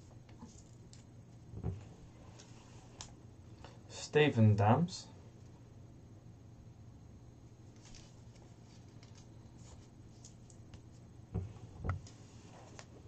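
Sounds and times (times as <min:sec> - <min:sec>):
steady low hum: 0:00.0 - 0:13.0
paper rustling: 0:07.7 - 0:10.9.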